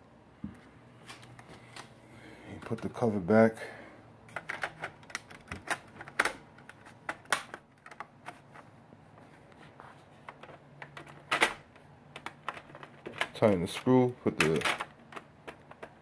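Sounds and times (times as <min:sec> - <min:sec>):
plastic cover clicking and snapping: 0:04.3 - 0:08.3, 0:10.3 - 0:13.6, 0:14.3 - 0:16.0.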